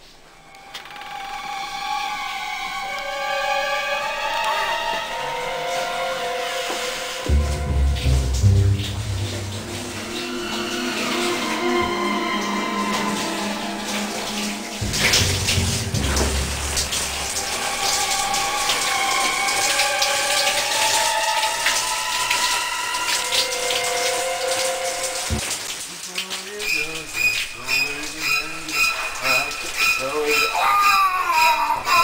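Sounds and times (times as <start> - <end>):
slow background music: 0.0 - 25.4, 26.2 - 32.0
shower water spraying: 1.1 - 32.0
low rumble: 7.3 - 10.6, 14.8 - 18.3.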